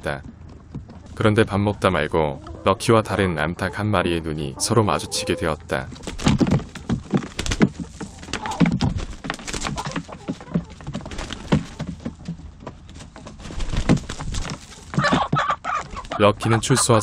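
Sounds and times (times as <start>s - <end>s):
hens fighting with wing flaps: 5.6s - 16.6s.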